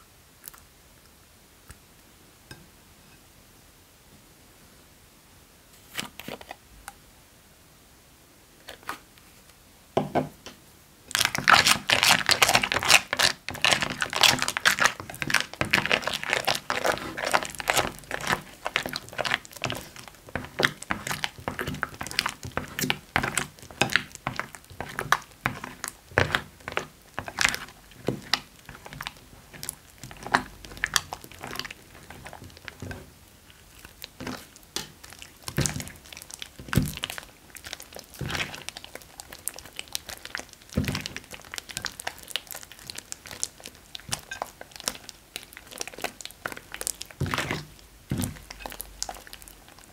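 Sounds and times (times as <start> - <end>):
slime squishing crackling and popping: 11.1 - 49.9.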